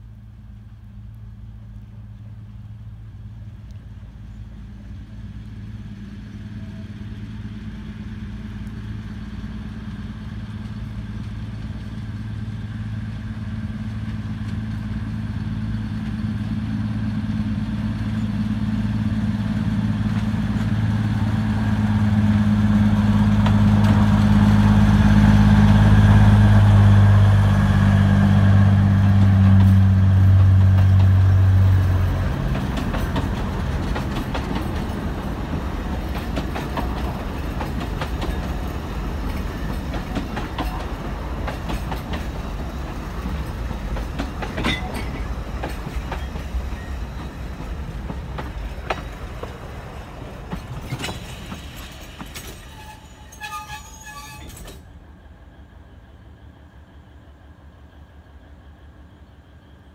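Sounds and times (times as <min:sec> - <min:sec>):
diesel locomotive engine: 0:00.0 - 0:59.9
train wheels clicking over rail joints: 0:20.0 - 0:25.2, 0:28.8 - 0:55.0.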